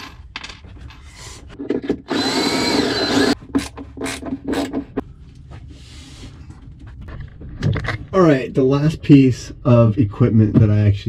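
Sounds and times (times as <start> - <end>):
cordless drill whining: 2.1 - 3.4.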